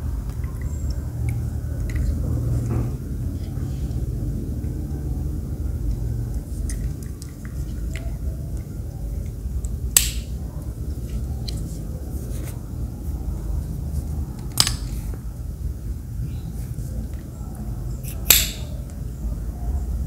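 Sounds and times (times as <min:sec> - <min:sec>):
steady low rumble: 0:00.0 - 0:20.0.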